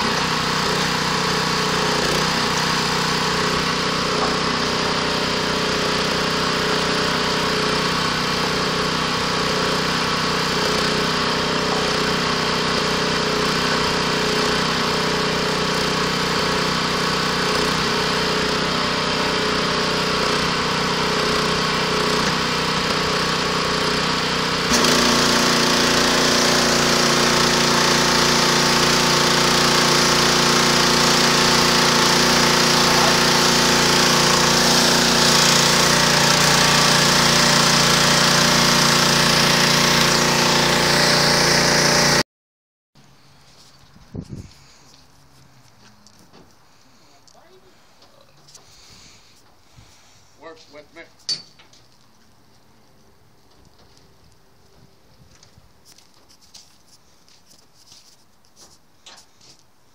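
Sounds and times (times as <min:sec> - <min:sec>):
pressure washer engine running: 0:00.0 - 0:42.2.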